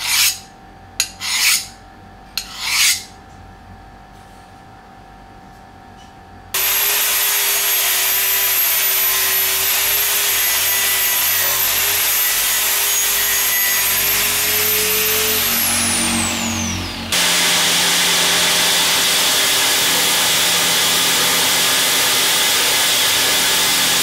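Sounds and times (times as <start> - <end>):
angle grinder grinding steel: 6.6 - 24.0.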